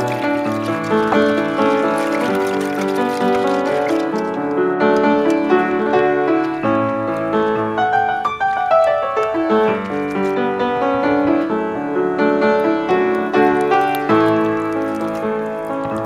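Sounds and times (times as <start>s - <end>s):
piano music: 0.0s - 16.0s.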